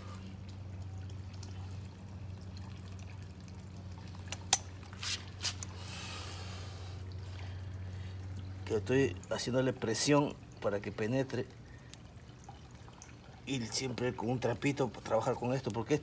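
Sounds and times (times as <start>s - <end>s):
low hum: 0.0s - 10.6s
water trickling: 0.0s - 16.0s.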